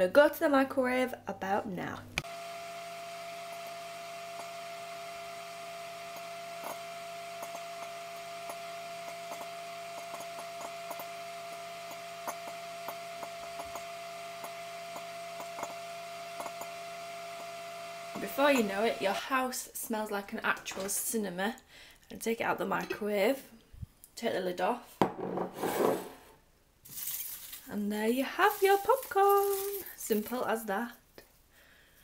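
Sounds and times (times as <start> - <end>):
popcorn popping: 2.2 - 19.1
microwave oven humming: 2.2 - 19.4.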